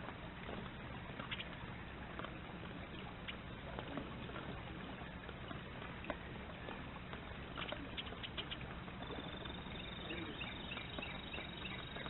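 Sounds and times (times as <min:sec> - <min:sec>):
woodpecker tapping: 0:01.2 - 0:01.6, 0:05.5 - 0:12.0
bird chirping: 0:07.6 - 0:12.0.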